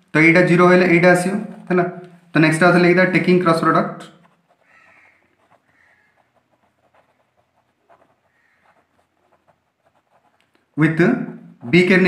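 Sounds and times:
pen scratching on paper: 4.1 - 10.6.

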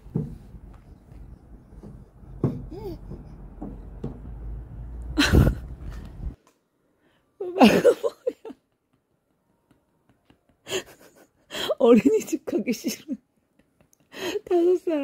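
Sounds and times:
low outdoor hum: 0.0 - 11.6.

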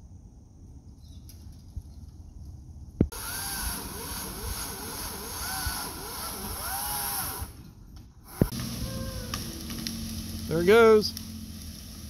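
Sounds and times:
chainsaw revving: 3.1 - 7.6, 8.3 - 12.0.

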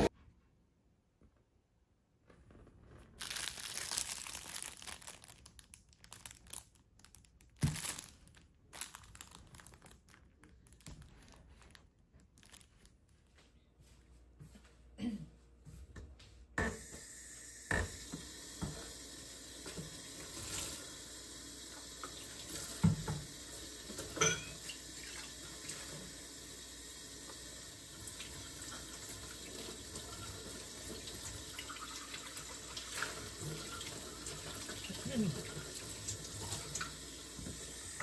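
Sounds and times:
tap running into sink: 21.8 - 24.7
dishes clinking and knocking: 24.0 - 24.6.

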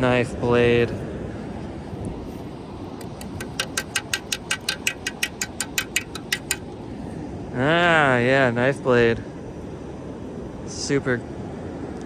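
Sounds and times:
rapid sharp clicks: 3.0 - 6.6
low background hiss: 5.7 - 12.0.

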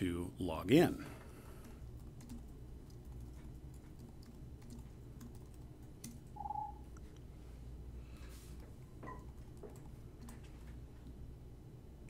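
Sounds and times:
brief tone: 6.4 - 6.8.

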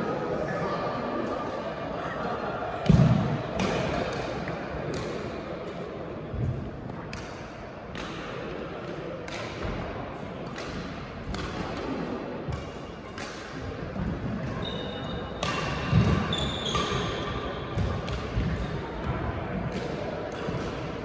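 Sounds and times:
rackets hitting shuttlecock: 2.8 - 5.8, 6.4 - 21.0
shoes squeaking on floor: 14.5 - 15.2, 16.2 - 17.1.

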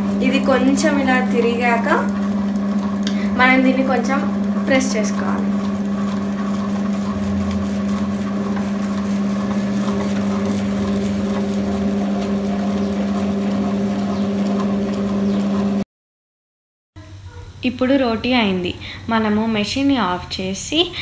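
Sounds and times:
roti maker motor humming: 0.0 - 15.8.

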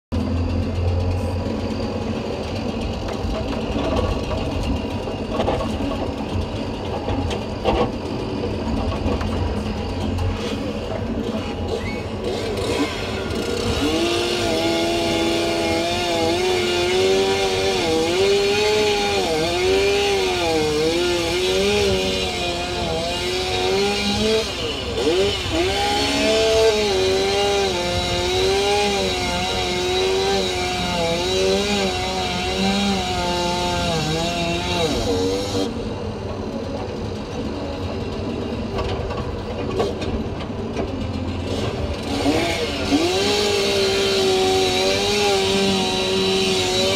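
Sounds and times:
low engine rumble: 0.1 - 14.1
chainsaw running: 0.2 - 37.9, 40.9 - 46.9.

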